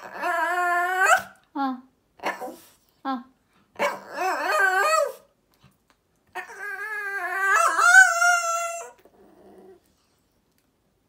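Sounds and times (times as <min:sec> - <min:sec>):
dog whining and howling: 0:00.0 - 0:01.4, 0:03.8 - 0:05.3, 0:06.3 - 0:09.8.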